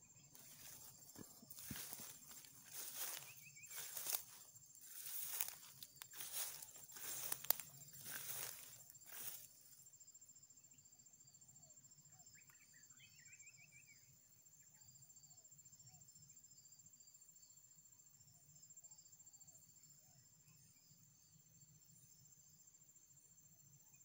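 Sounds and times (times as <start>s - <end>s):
insect chirring: 0.0s - 9.9s
footsteps rustling through undergrowth: 0.4s - 9.7s.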